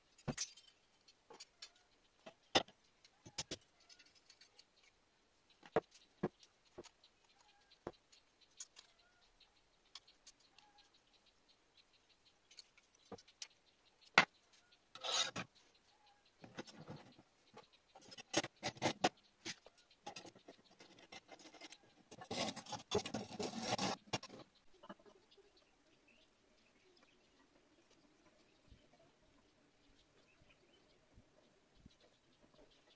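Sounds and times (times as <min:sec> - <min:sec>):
metal parts clicking and tapping: 0:00.1 - 0:04.9
steel rod scraping and rattling: 0:15.0 - 0:15.5, 0:18.0 - 0:24.4.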